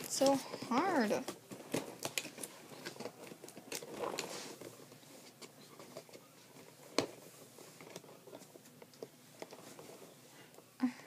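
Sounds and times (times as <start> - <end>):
crinkling plastic packaging: 0.0 - 4.9.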